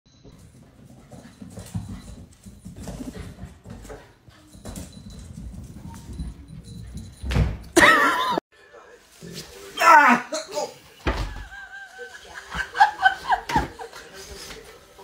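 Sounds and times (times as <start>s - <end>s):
paws pattering on hard floor: 0.2s - 7.6s.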